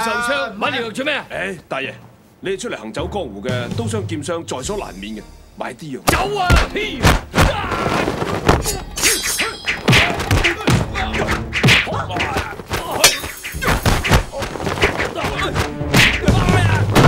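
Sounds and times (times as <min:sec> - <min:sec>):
shouts and grunts: 0:06.2 - 0:17.0.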